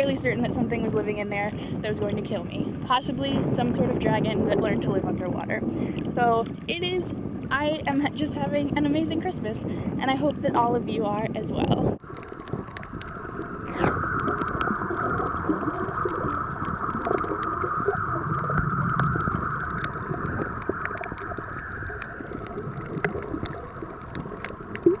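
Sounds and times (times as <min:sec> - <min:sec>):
muffled underwater noise: 0:00.0 - 0:25.0
small sharp underwater clicks: 0:12.0 - 0:25.0.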